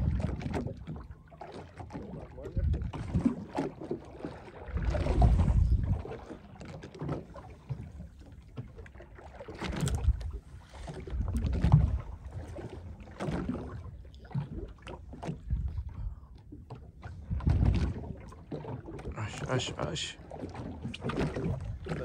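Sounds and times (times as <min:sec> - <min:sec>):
wind buffeting microphone: 0:00.0 - 0:00.8, 0:02.4 - 0:03.4, 0:04.8 - 0:06.3, 0:15.3 - 0:16.2, 0:17.1 - 0:18.2
water lapping against boat hull: 0:00.0 - 0:22.0.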